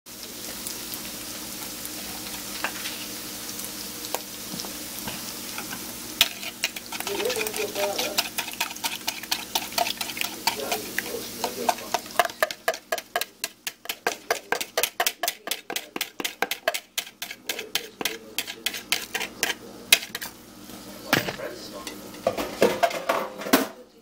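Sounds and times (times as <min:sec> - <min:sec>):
faint sizzling: 0:00.1 - 0:23.2
fork clicking against bowl: 0:08.2 - 0:20.3.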